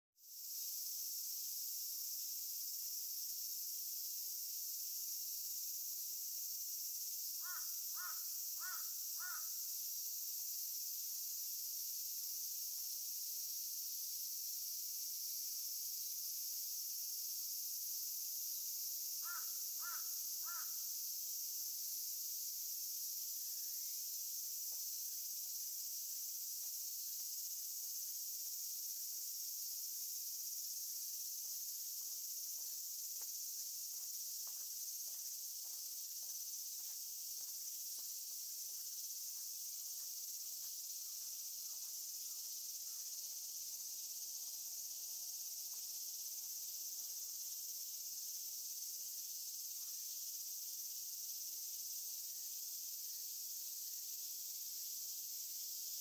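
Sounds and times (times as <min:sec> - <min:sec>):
high-pitched insect chorus: 0:00.2 - 0:56.0
crow cawing: 0:07.4 - 0:09.6, 0:19.2 - 0:20.8.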